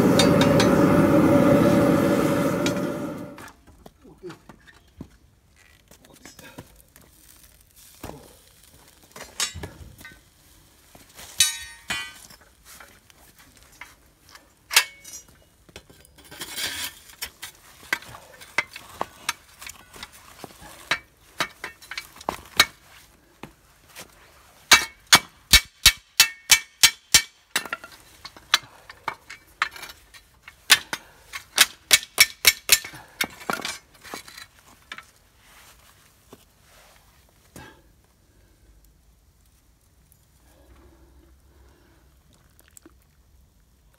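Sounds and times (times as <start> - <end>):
metal tool clinking on steel tube: 11.4 - 12.4, 14.7 - 18.8.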